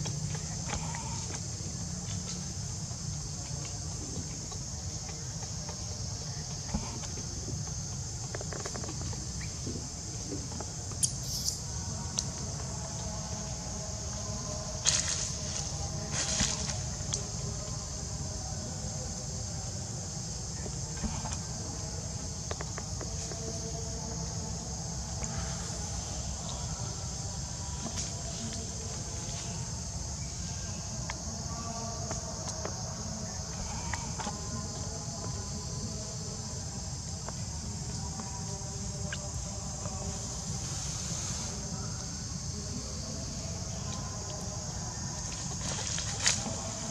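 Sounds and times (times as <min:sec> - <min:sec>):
insect chorus buzzing: 0:00.0 - 0:46.9.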